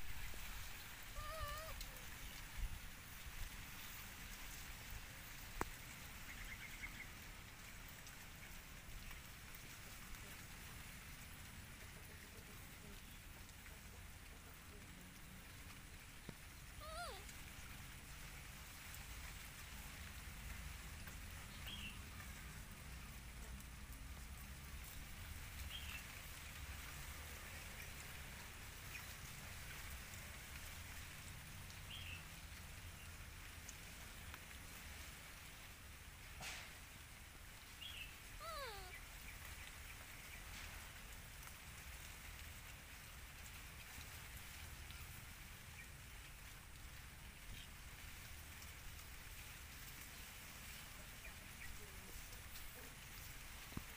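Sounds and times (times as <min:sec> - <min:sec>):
high monkey chirps: 0:00.1 - 0:01.8, 0:16.8 - 0:17.3, 0:38.4 - 0:39.1.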